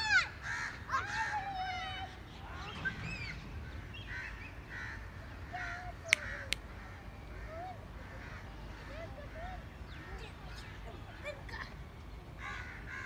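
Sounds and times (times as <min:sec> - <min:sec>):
crows cawing: 0:00.1 - 0:01.4, 0:04.0 - 0:10.6, 0:12.4 - 0:13.0.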